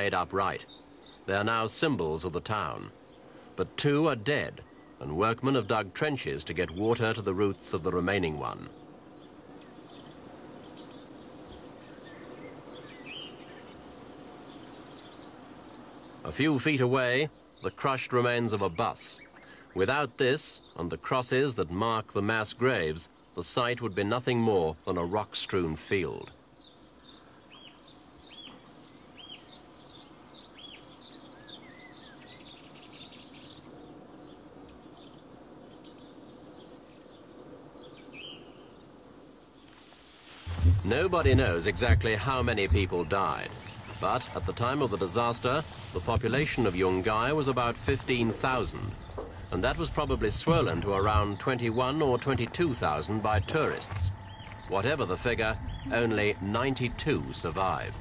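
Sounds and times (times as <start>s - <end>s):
background hiss: 0.0s - 58.0s
faint bird chirps: 0.0s - 58.0s
steady background noise: 0.0s - 58.0s
low hum: 40.5s - 58.0s.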